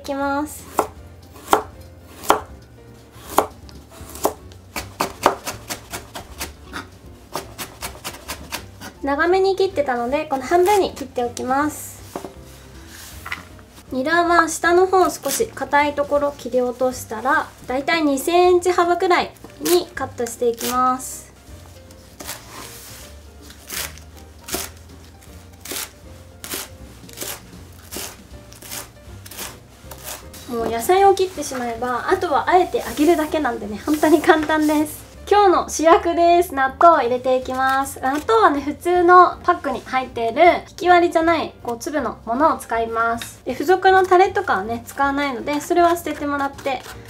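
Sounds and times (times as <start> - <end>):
knife chopping on wooden board: 0.7 - 2.6, 3.2 - 9.0, 23.7 - 24.8, 25.6 - 30.7.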